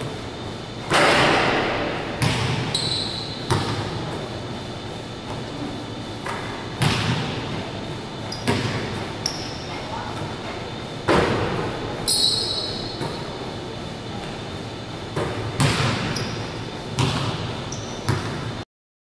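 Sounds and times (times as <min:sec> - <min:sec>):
basketball banging hoop: 0:00.9 - 0:04.0, 0:06.3 - 0:07.4, 0:08.4 - 0:09.0, 0:15.2 - 0:16.4, 0:17.0 - 0:17.5, 0:18.1 - 0:18.5
high squeak: 0:02.7 - 0:03.4, 0:12.1 - 0:13.0.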